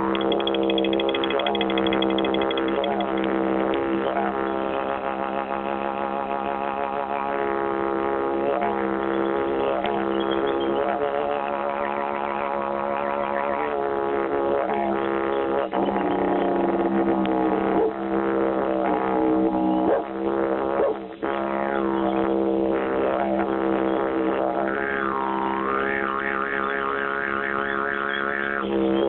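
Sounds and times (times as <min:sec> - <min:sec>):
didgeridoo drone: 0:00.0 - 0:29.0.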